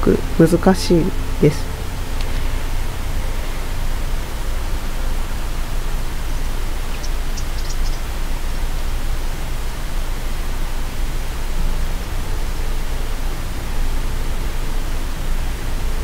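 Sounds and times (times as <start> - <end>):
loud rushing hiss: 0.0 - 16.0
faint high chirps: 6.9 - 8.1.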